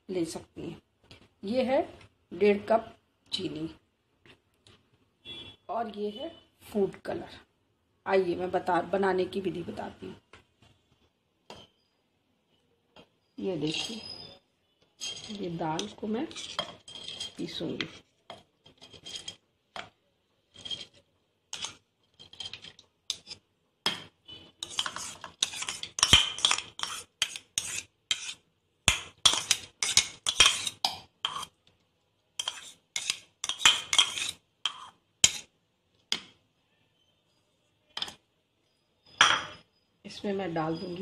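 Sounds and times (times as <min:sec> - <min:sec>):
metal spoon scraping bowl: 0:13.4 - 0:14.4, 0:15.0 - 0:19.9, 0:20.5 - 0:23.4, 0:24.3 - 0:31.6, 0:32.4 - 0:35.5.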